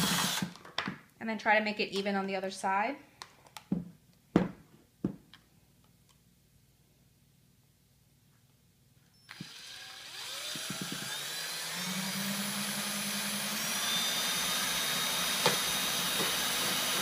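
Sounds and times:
cordless drill boring plastic: 0:00.0 - 0:00.6, 0:09.3 - 0:17.0.

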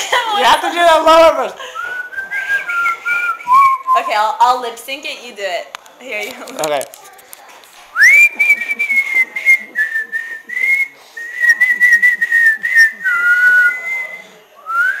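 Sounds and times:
person whistling: 0:01.8 - 0:04.1, 0:08.0 - 0:15.0.

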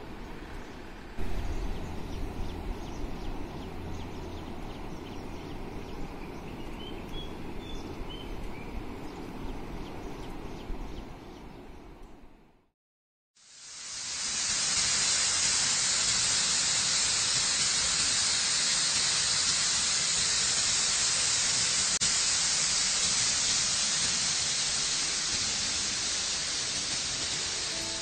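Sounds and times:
waterfall rushing: 0:14.0 - 0:28.0.

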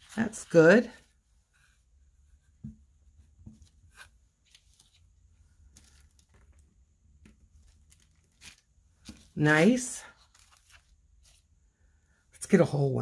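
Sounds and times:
plastic and paper rustling: 0:03.6 - 0:06.7, 0:07.3 - 0:11.5.

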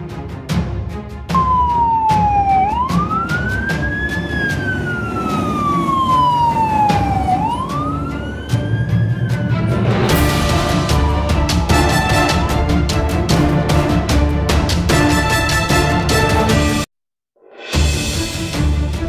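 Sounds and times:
background music: 0:00.0 - 0:19.0
toy siren wailing: 0:01.4 - 0:09.5.

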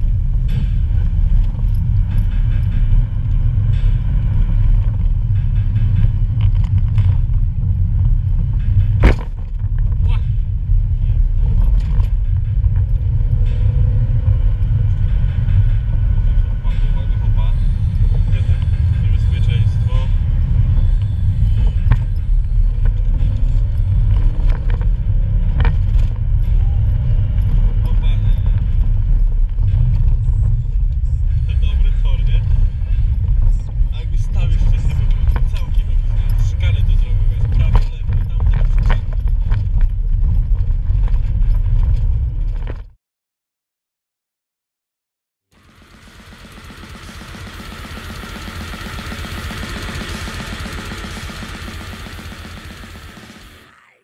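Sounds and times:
low engine and road rumble: 0:00.0 - 0:43.0, 0:45.5 - 0:54.0.

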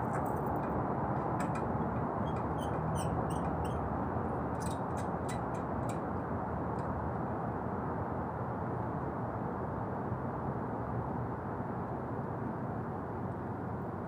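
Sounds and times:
light metallic clicks and taps: 0:00.0 - 0:03.7, 0:04.6 - 0:06.1.

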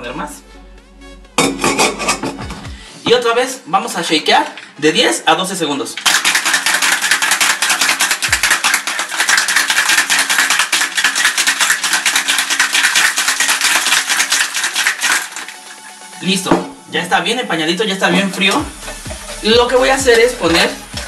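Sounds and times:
ice rattling in cocktail shaker: 0:05.9 - 0:16.2.

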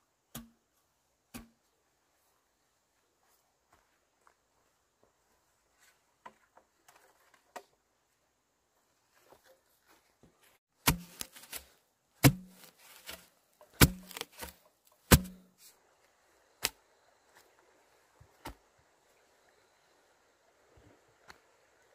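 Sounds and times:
pole knocking into ground: 0:10.8 - 0:11.6, 0:12.2 - 0:13.2, 0:13.8 - 0:14.5, 0:15.1 - 0:15.5.

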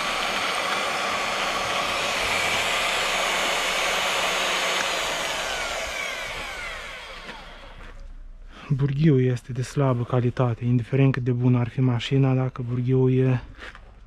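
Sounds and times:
drill motor spinning down: 0:00.0 - 0:08.0
drill motor whining: 0:00.0 - 0:08.0.

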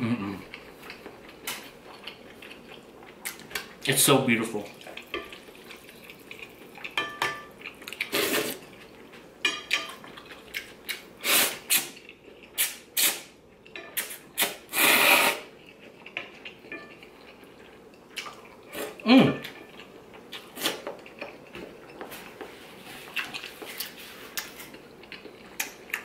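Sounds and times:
person slurping noodles: 0:08.1 - 0:08.6, 0:11.2 - 0:11.8, 0:14.0 - 0:15.5.

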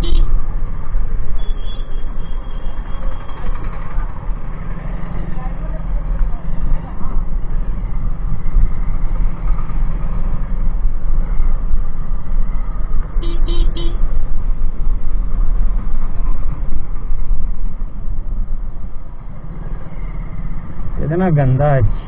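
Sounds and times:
horn beeps: 0:01.4 - 0:03.4
motorcycle engine rumble: 0:02.0 - 0:21.0.

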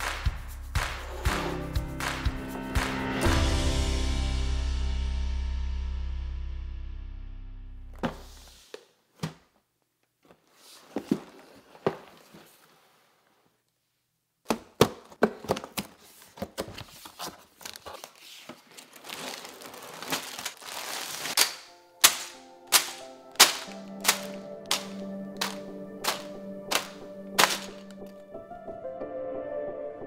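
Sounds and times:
music: 0:00.0 - 0:08.0, 0:21.7 - 0:30.0
plastic bags crinkling: 0:16.7 - 0:28.2.

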